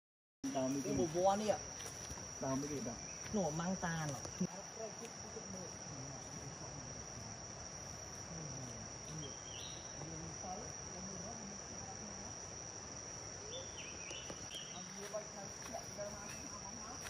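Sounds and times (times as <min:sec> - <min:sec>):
insects droning: 0:00.4 - 0:17.0.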